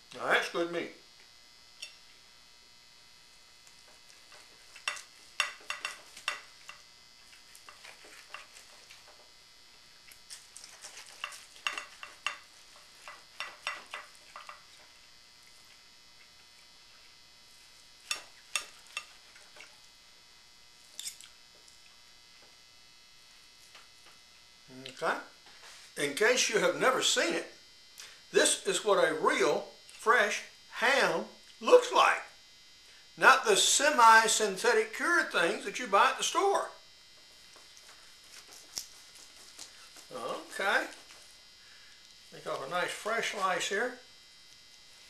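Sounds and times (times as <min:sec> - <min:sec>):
cutlery clinking on ceramic plate: 0:04.8 - 0:06.8, 0:11.2 - 0:14.6.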